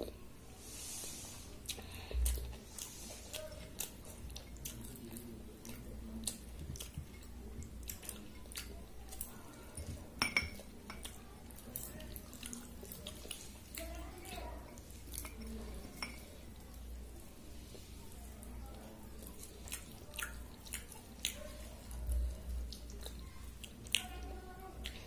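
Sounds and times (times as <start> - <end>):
chewing: 1.2 - 25.0
bangles clinking on bowls: 9.7 - 11.0, 15.2 - 16.3.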